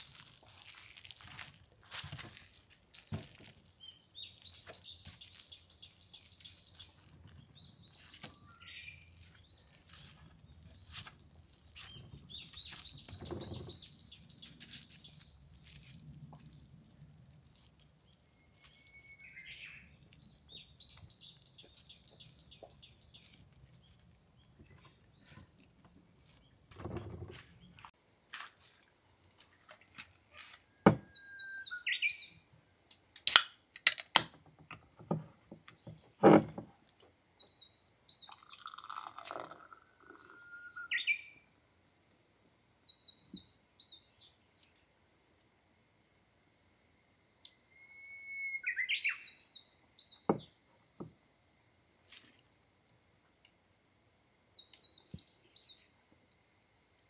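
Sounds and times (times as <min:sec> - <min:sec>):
birds chirping: 0:11.8 - 0:15.4, 0:18.3 - 0:25.8, 0:37.4 - 0:41.4.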